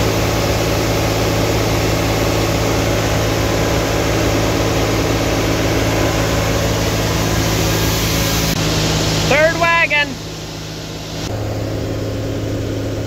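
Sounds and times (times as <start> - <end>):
tractor engine and auger drone: 0.0 - 13.0
grain pouring hiss: 3.6 - 11.3.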